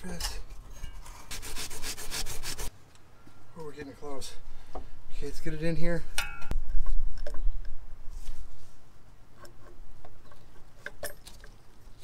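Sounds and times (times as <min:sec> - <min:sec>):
metal housing clicks and knocks: 0:06.1 - 0:07.4.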